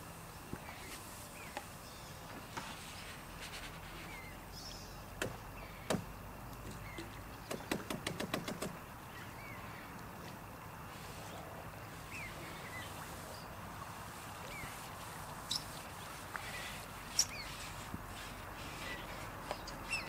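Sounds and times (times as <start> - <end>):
birds chirping faintly: 0.0 - 20.0.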